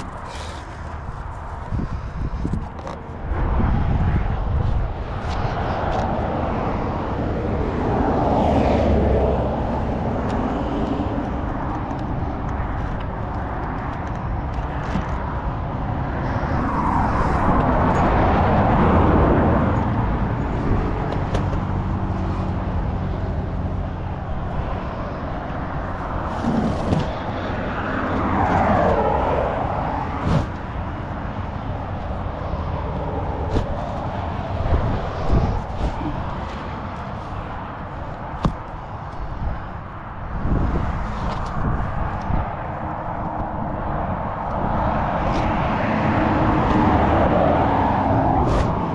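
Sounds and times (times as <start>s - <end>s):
vehicles passing: 0.0s - 48.9s.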